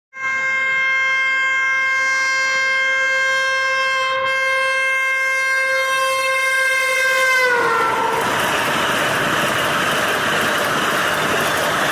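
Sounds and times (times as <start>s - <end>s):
train horn long blast: 0.1s - 8.4s.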